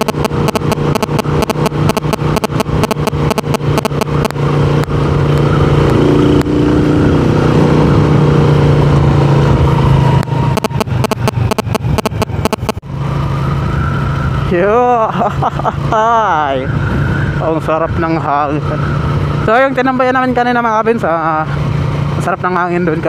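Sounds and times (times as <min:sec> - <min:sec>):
rapid crackling: 0:00.0 - 0:04.4, 0:10.5 - 0:12.8
motorcycle engine running: 0:00.0 - 0:15.0.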